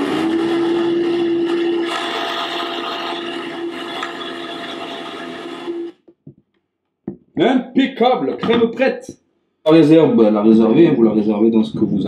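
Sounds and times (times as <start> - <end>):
blender running: 0.0 - 6.0.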